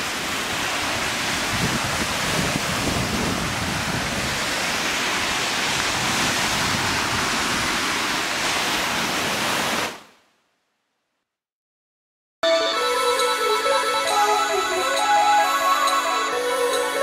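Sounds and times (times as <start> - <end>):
wind blowing over microphone: 0.0 - 9.8.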